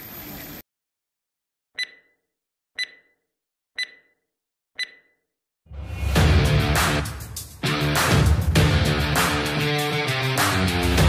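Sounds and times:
short electronic beeps: 0:01.8 - 0:03.2, 0:03.8 - 0:04.2, 0:04.8 - 0:05.2.

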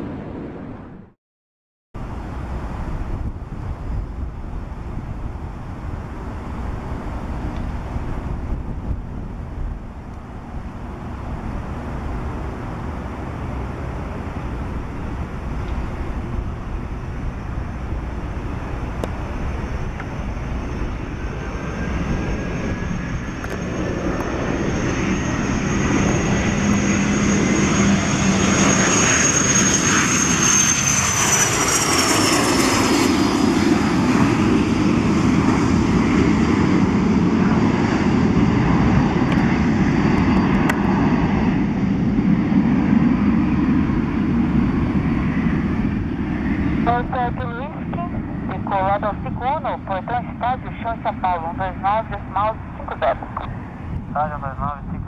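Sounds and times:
jet engine whine and rush: 0:00.0 - 0:01.2, 0:02.0 - 0:55.0
jet climb-out rumble: 0:33.9 - 0:55.0.

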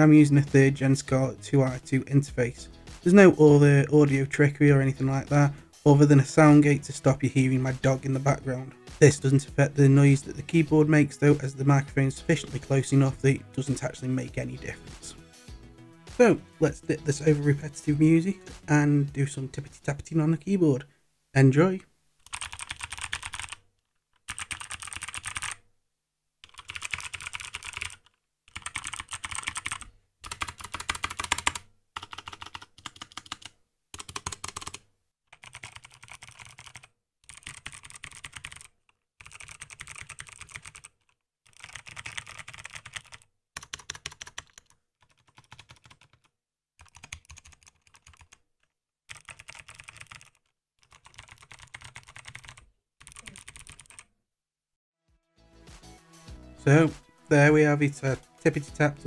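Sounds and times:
fast typing on mechanical keyboard: 0:22.3 - 0:23.6, 0:24.2 - 0:25.6, 0:26.4 - 0:34.8, 0:35.4 - 0:48.4, 0:49.1 - 0:54.1.

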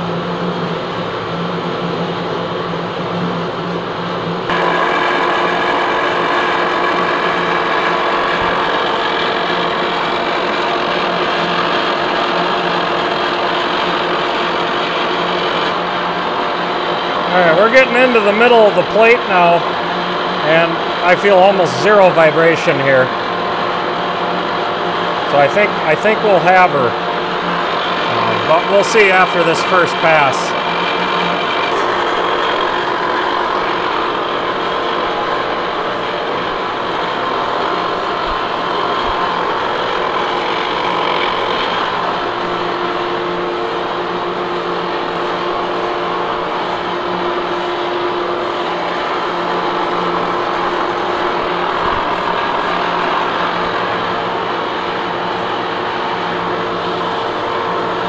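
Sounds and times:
milling machine drone: 0:00.0 - 0:58.0
extra machine tone: 0:04.4 - 0:12.1, 0:25.3 - 0:58.0.

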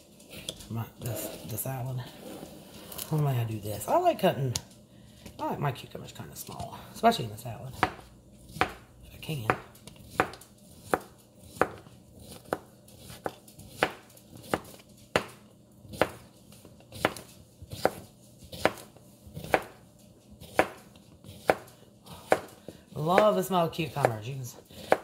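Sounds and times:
knife slicing cucumber: 0:07.7 - 0:19.8, 0:20.4 - 0:23.4.

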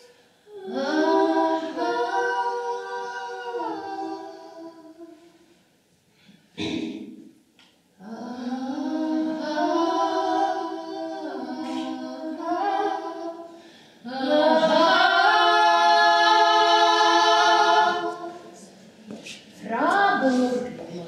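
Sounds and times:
woman singing: 0:19.6 - 0:21.0.

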